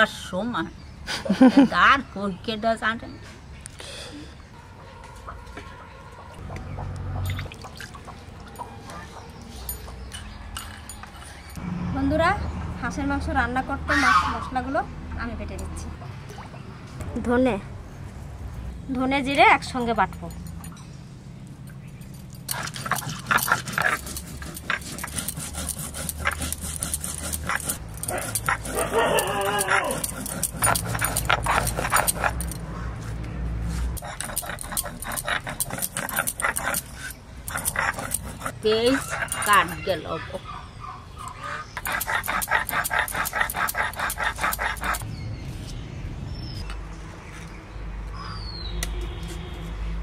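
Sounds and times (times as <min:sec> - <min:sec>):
dog crying: 0:27.5 - 0:32.5, 0:34.0 - 0:45.0.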